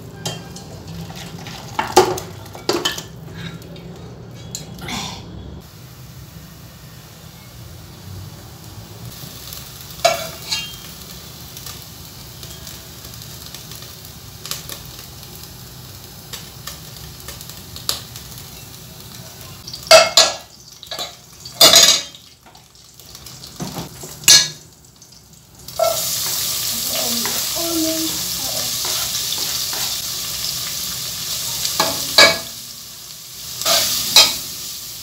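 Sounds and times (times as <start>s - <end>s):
utensils clanking against pot: 0.2s - 4.8s, 10.0s - 10.8s, 19.9s - 22.2s, 25.8s - 26.4s, 31.8s - 32.5s.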